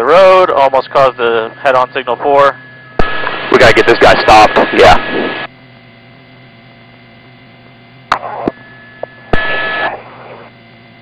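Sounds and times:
low hum: 0:00.0 - 0:11.0
steady beep tone: 0:00.1 - 0:04.5, 0:08.6 - 0:10.0
radio click: 0:03.0 - 0:05.5, 0:08.1 - 0:10.4
radio static burst: 0:03.0 - 0:05.5, 0:08.1 - 0:08.6, 0:09.3 - 0:10.5.

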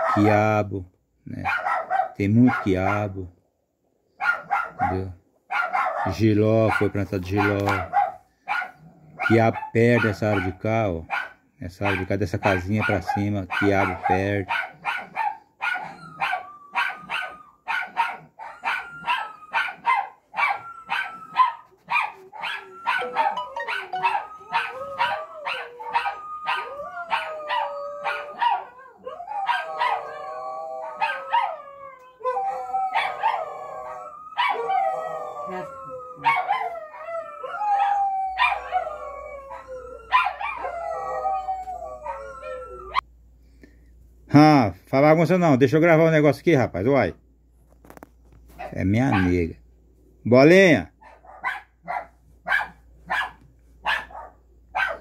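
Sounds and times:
dog barking: 0:00.0 - 0:00.3, 0:01.4 - 0:03.1, 0:04.2 - 0:28.8, 0:29.4 - 0:30.2, 0:30.9 - 0:31.6, 0:32.9 - 0:33.4, 0:34.4 - 0:34.7, 0:36.2 - 0:36.7, 0:38.4 - 0:38.8, 0:40.1 - 0:40.7, 0:48.6 - 0:49.4, 0:51.0 - 0:55.0
dog howling and whining: 0:12.8 - 0:43.1.

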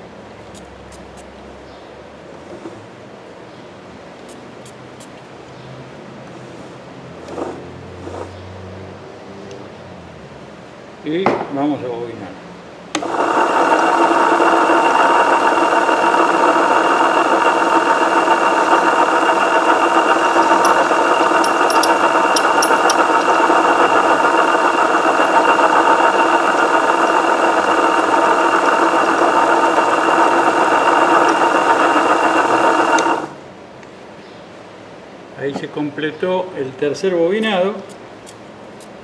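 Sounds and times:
coil-winding machine motor whine: 0:13.0 - 0:33.4.

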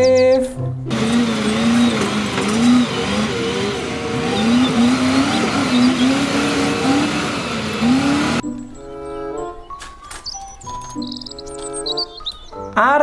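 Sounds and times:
diesel engine revving under load: 0:00.9 - 0:08.4.

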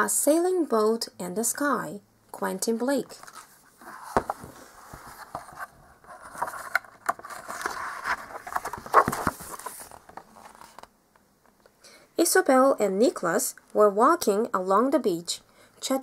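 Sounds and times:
book pages rustling and turning: 0:03.1 - 0:10.9.

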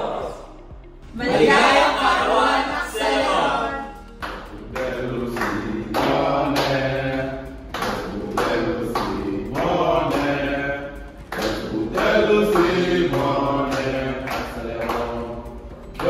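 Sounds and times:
men singing in unison: 0:01.2 - 0:16.0
hand claps: 0:04.2 - 0:10.7, 0:11.3 - 0:16.0.

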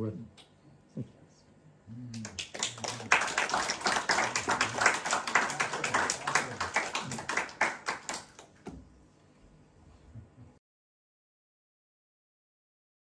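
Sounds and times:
audience applauding: 0:02.2 - 0:08.6.

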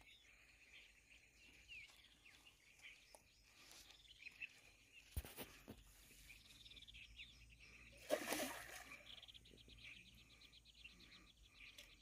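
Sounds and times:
splash in water: 0:08.0 - 0:09.0.

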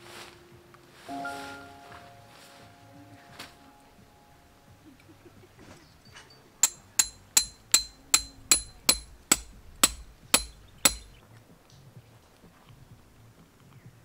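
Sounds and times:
hammer striking tent stake: 0:06.6 - 0:11.2.

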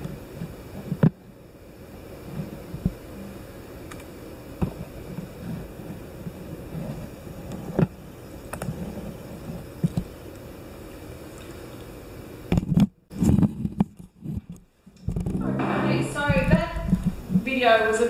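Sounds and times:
low hum: 0:15.4 - 0:17.4.

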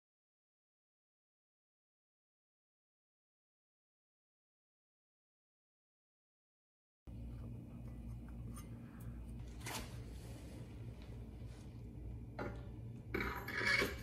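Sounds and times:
low steady hum: 0:07.1 - 0:14.0.

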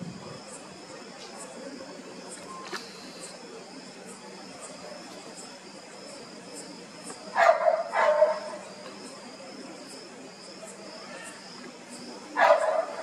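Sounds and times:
dog barking: 0:07.4 - 0:08.6, 0:12.4 - 0:13.0.

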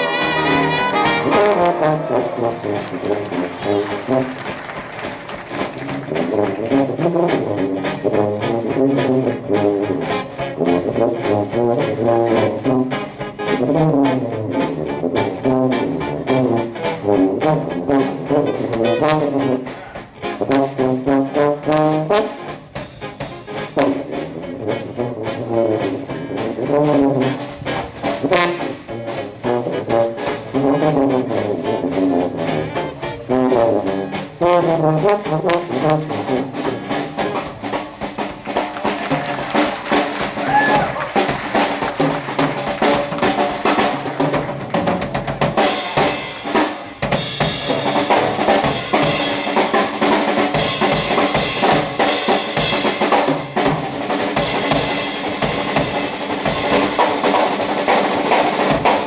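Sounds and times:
piano: 0:00.0 - 0:17.1
clarinet: 0:00.0 - 0:37.6
dixieland jazz band playing: 0:00.0 - 0:59.0
drums keeping a steady beat: 0:00.0 - 0:59.0
trombone: 0:00.0 - 0:59.0.

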